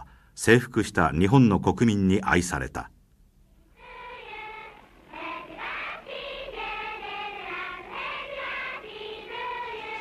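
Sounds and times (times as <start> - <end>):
children singing: 3.8 - 10.0.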